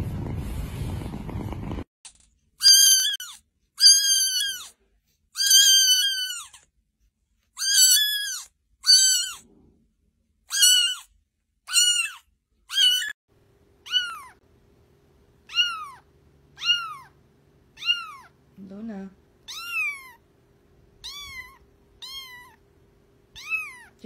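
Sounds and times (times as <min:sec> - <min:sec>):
kittens mewing: 0:02.6 - 0:04.8, 0:05.4 - 0:06.6, 0:07.6 - 0:09.5, 0:10.5 - 0:13.2, 0:13.8 - 0:14.4, 0:15.4 - 0:18.4, 0:19.4 - 0:20.2, 0:21.0 - 0:22.6, 0:23.4 - 0:24.0.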